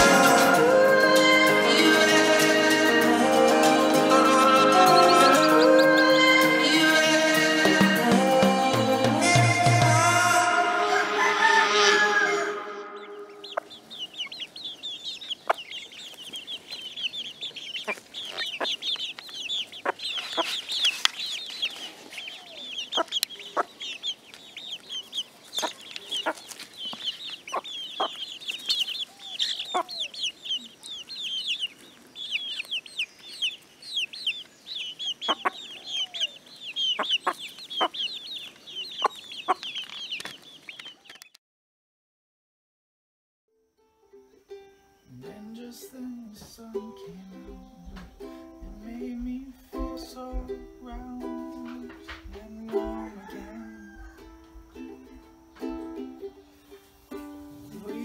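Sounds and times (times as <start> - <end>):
high rapid chirping: 0.0 - 8.8
chickens pecking the ground: 0.0 - 9.8, 13.0 - 41.3, 45.3 - 58.0
chickens clucking: 0.0 - 41.4, 44.1 - 58.0.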